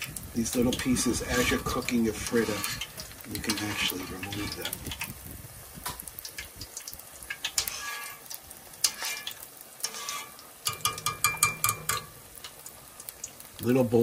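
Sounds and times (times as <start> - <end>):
batter sizzling in hot oil: 0.0 - 14.0
metal spoon scraping pan: 0.4 - 4.9, 7.3 - 12.6.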